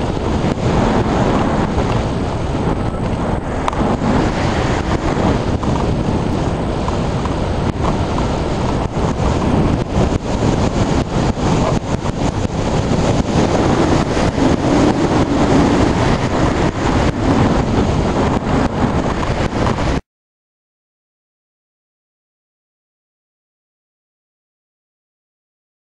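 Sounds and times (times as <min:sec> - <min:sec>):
gusty wind on microphone: 0:00.0 - 0:20.0.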